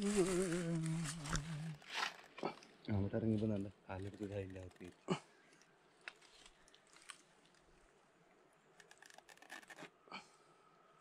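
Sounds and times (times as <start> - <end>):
faint clicks and crackles: 4.0 - 7.9.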